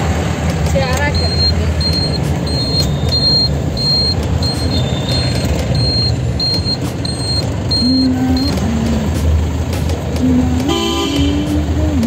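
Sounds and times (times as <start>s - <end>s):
car engine and road rumble: 0.0s - 12.0s
short high electronic beep: 1.2s - 8.5s
car horn: 10.6s - 11.7s.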